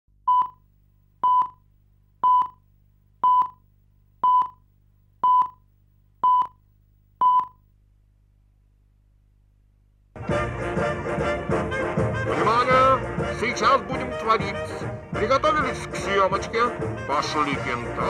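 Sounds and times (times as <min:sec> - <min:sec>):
faint low hum: 0:00.2 - 0:10.2
short countdown beeps: 0:01.2 - 0:01.6, 0:02.2 - 0:02.6, 0:03.2 - 0:03.6, 0:04.2 - 0:04.6, 0:05.2 - 0:05.6, 0:06.2 - 0:06.6, 0:07.2 - 0:07.6.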